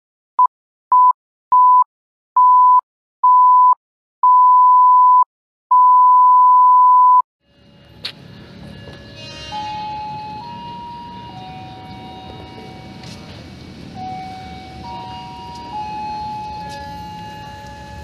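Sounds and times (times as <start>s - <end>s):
outdoor ambience: 7.4s - 18.0s.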